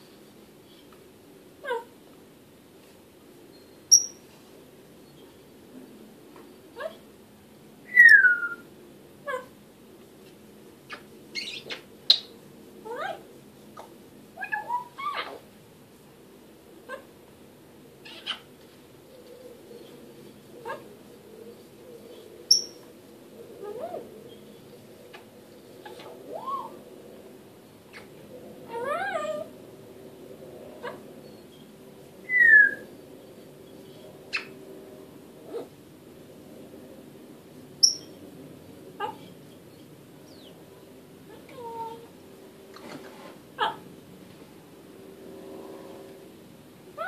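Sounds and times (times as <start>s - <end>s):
parrot calling: 3.9s - 4.2s, 10.9s - 12.3s, 12.9s - 15.4s, 18.0s - 18.5s
parrot chirping: 3.9s - 4.2s, 10.9s - 12.3s, 18.0s - 18.5s, 22.5s - 22.8s, 37.8s - 38.2s
parrot whistling: 7.9s - 8.6s.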